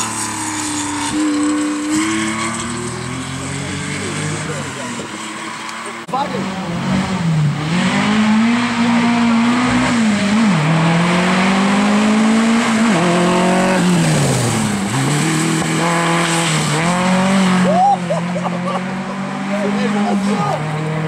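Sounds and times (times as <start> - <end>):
car engine accelerating hard: 0.0 - 21.0.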